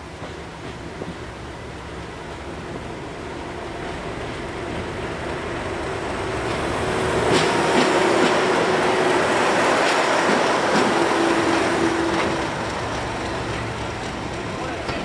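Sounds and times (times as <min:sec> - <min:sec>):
diesel locomotive engine: 0:00.0 - 0:15.0
train wheels clacking: 0:06.3 - 0:15.0.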